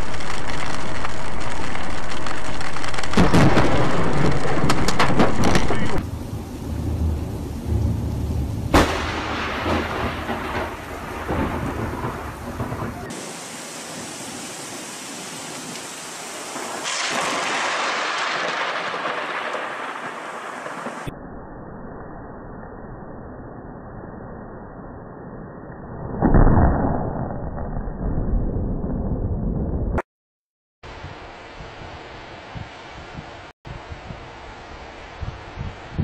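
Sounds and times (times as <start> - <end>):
rain hissing: 0.0 - 21.1
thunder rumbling: 0.0 - 21.2
sharp thunder crack: 2.8 - 14.1, 16.4 - 21.1.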